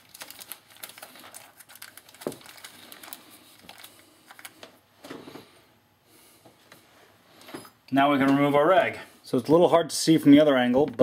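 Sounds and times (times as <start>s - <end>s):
plastic bag crinkling: 0.0s - 4.8s.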